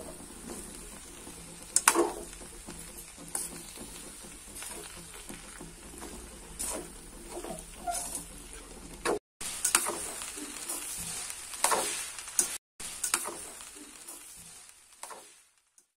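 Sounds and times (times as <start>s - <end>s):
utensil scraping a metal pan: 0.0s - 9.0s
rice sizzling in a pan: 0.0s - 16.0s.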